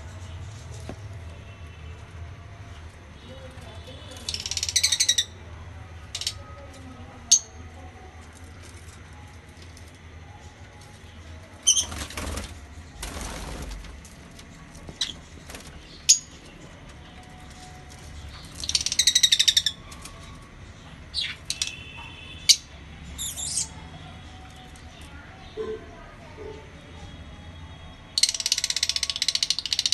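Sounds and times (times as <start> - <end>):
lovebirds chirping: 10.7 - 12.1, 14.6 - 26.1
wings flapping: 11.7 - 16.0.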